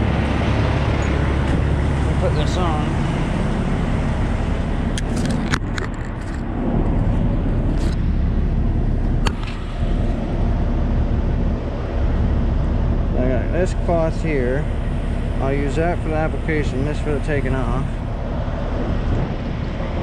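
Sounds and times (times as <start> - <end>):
diesel truck engine idling: 0.0 - 5.6, 6.4 - 20.0
sharp clicks and knocks: 4.9 - 6.5, 9.0 - 9.7.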